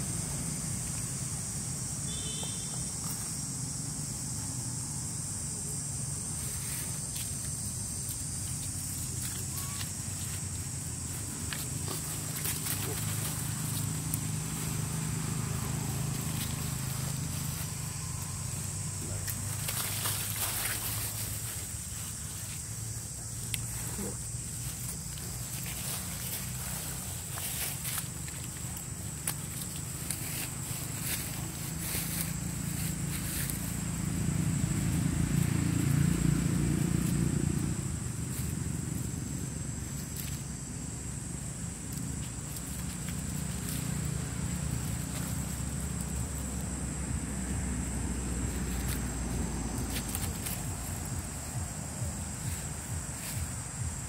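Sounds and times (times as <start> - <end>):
vehicle engine passing: 10.0 - 22.1, 25.8 - 54.0.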